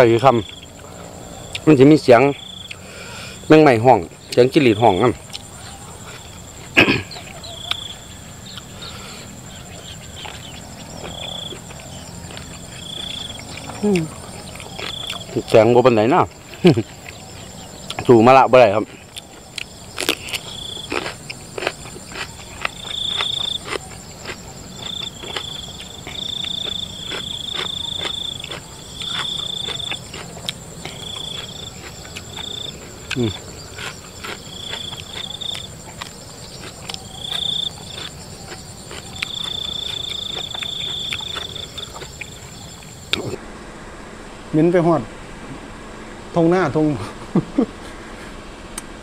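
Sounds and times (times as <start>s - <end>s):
crickets trilling: 0.0s - 49.0s
high insect whine: 0.0s - 49.0s
chewing raw cucumber: 5.2s - 7.9s, 10.0s - 15.6s, 18.8s - 43.4s.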